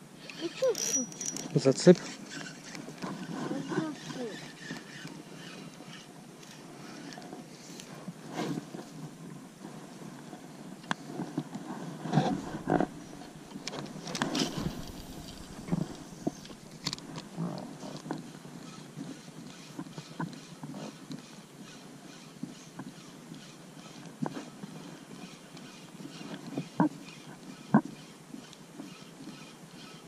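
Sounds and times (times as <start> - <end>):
knocks and rubbing of fishing gear: 11.2 - 18.2.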